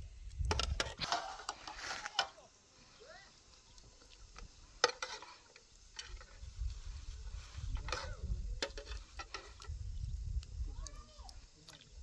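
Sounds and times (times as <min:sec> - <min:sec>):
metal ladle scraping a pot: 0:04.8 - 0:06.5, 0:07.6 - 0:09.7.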